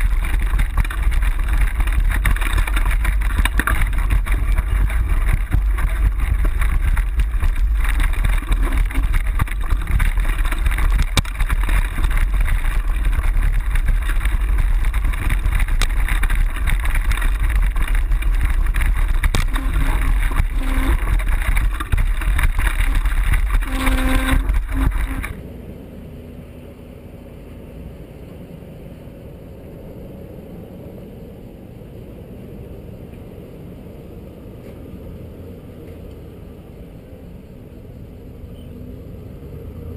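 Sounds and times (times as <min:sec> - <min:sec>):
wind on microphone: 0:00.0 - 0:25.6
off-road vehicle engine running: 0:00.0 - 0:29.5
low engine rumble: 0:00.0 - 0:39.9.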